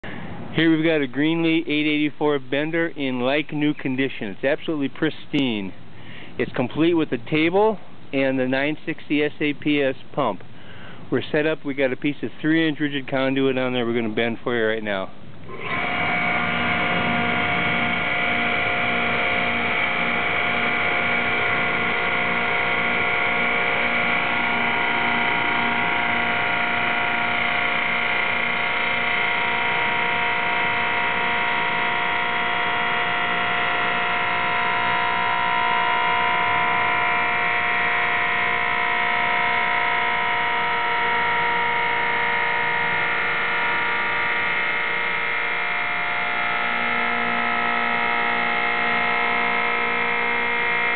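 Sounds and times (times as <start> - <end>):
hydraulic pump motor hum: 15.1 - 50.9.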